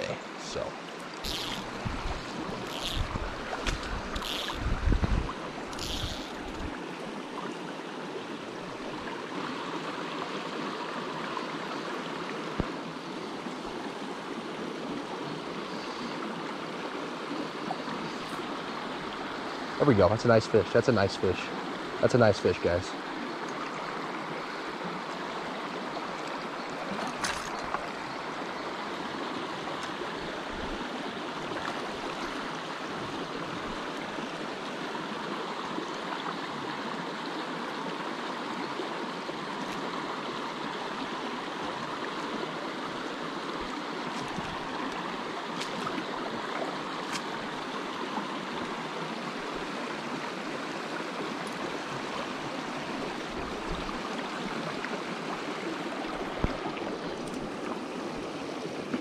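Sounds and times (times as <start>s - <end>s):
water babbling over rocks: 0.0s - 59.0s.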